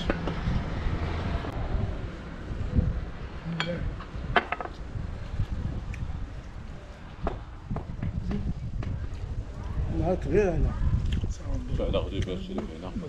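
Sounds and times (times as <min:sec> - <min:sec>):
low rumble: 0:00.2 - 0:12.0.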